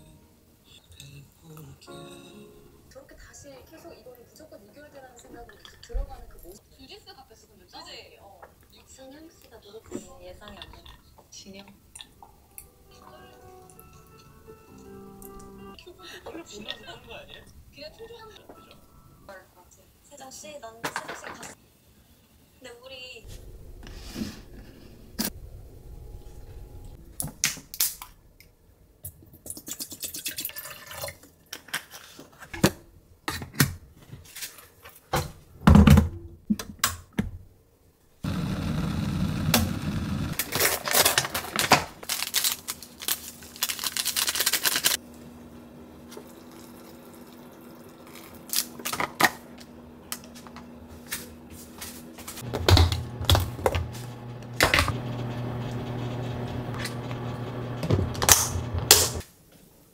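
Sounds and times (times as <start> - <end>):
electric kettle boiling: 38.2 - 40.4, 45.0 - 51.5, 52.1 - 59.2
packaging clicks and rustles: 40.4 - 45.0.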